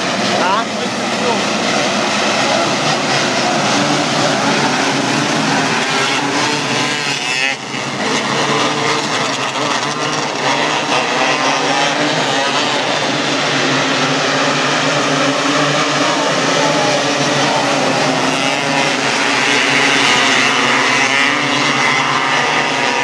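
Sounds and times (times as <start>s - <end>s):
racing cars high-revving engines: 0.0s - 23.0s.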